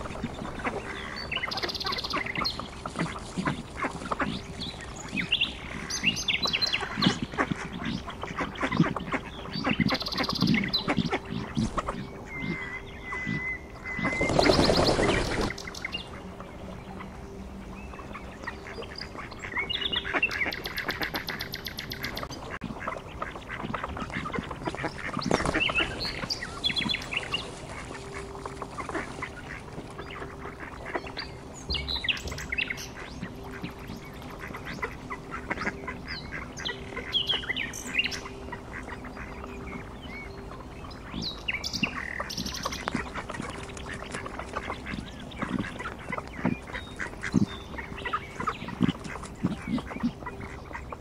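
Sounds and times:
ducks quacking: 0:00.0 - 0:51.0.

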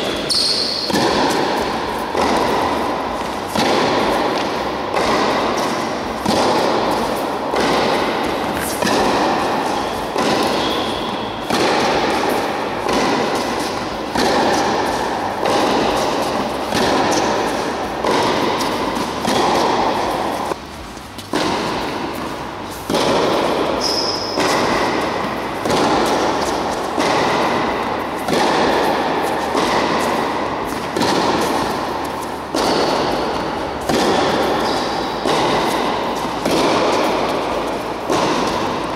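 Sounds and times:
tennis ball hits echoing: 0:00.0 - 0:20.6, 0:21.2 - 0:38.9.

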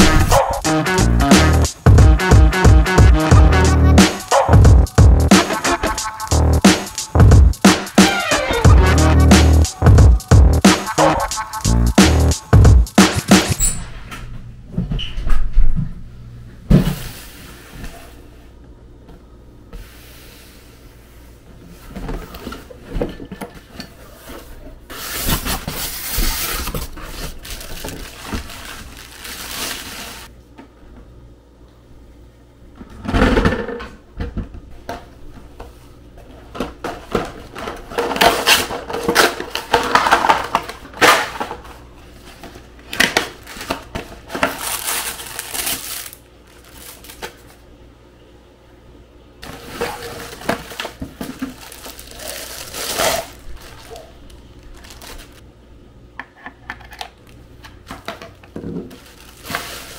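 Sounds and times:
cardboard packaging rustling: 0:24.9 - 0:30.3, 0:37.0 - 0:47.6, 0:49.4 - 0:55.4, 0:58.0 - 0:59.9
plastic wrapping crinkling: 0:25.0 - 0:30.3, 0:42.3 - 0:47.6, 0:49.4 - 0:55.4, 0:58.9 - 0:59.9.

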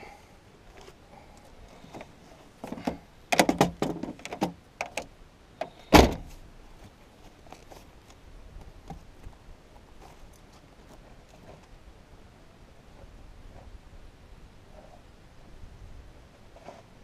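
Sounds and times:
knocks and clatters: 0:01.9 - 0:05.0
loud thump: 0:05.9 - 0:06.3.

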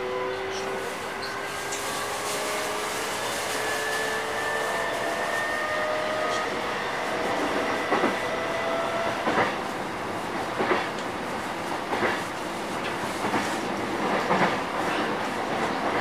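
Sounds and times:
electric train inverter whine: 0:00.0 - 0:10.2
train wheels rolling: 0:00.5 - 0:16.0.

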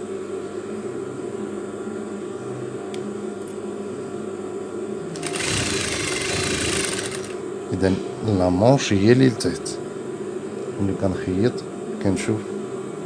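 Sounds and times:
sewing machine motor humming: 0:05.2 - 0:07.4
sewing machine stitching: 0:05.2 - 0:07.4.

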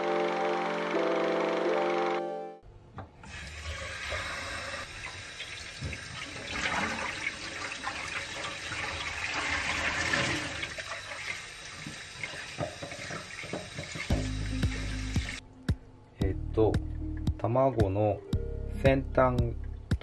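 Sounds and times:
tap water running into sink: 0:03.2 - 0:15.4.

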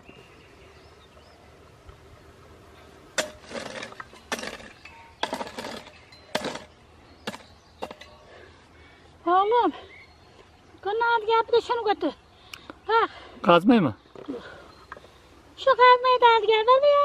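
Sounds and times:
hoe chopping soil: 0:03.1 - 0:08.2.

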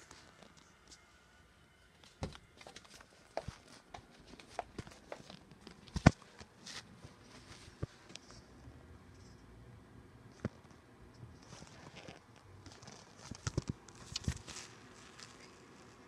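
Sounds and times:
quiet footsteps: 0:01.9 - 0:08.4.

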